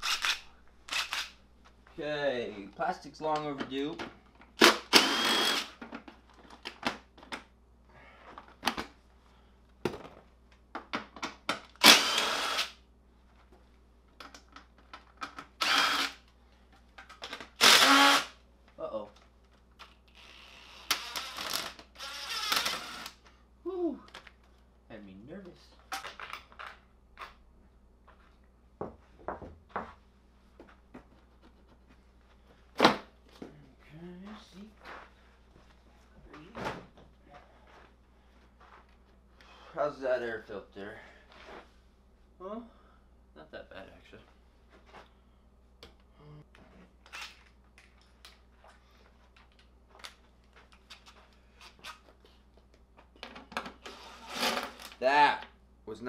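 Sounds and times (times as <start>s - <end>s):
low steady hum: 21.1s - 56.0s.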